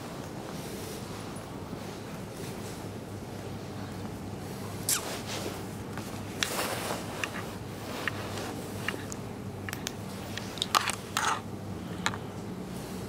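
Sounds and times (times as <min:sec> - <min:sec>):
steady low hum: 0:00.0 - 0:13.0
small clicks and scrapes: 0:06.4 - 0:12.2.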